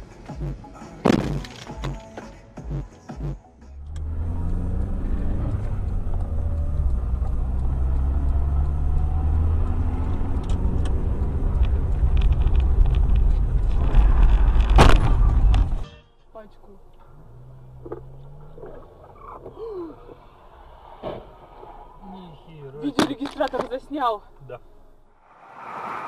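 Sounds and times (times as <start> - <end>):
car engine and road rumble: 0.0 - 26.0
faint ticks: 3.8 - 13.4.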